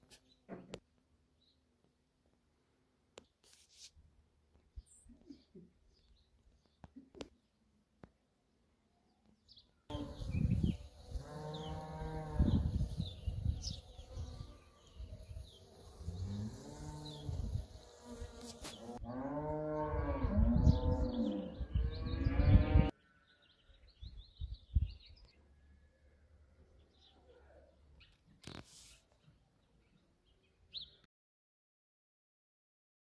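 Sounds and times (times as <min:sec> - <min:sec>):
cattle mooing: 0:11.2 - 0:12.6.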